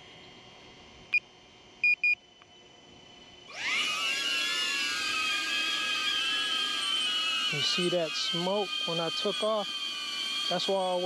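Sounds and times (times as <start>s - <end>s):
drone propellers buzzing: 3.2s - 11.0s.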